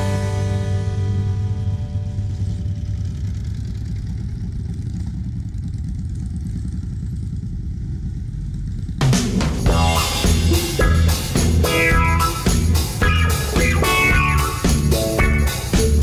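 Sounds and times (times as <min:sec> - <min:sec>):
rock music: 0:00.0 - 0:02.8, 0:09.0 - 0:16.0
motorcycle engines rumbling: 0:00.0 - 0:16.0.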